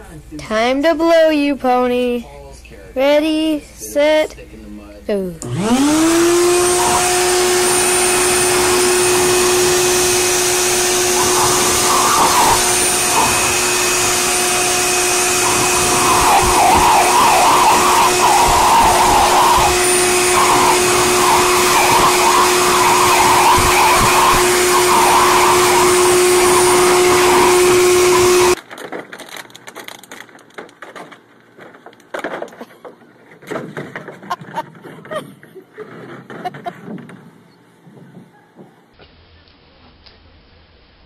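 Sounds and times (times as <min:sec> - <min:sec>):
blow dryer running: 0:05.4 - 0:28.6.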